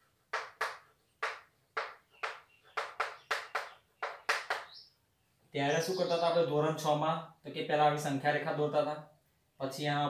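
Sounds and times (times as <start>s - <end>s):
chalk tapping and scratching: 0.3s - 4.8s.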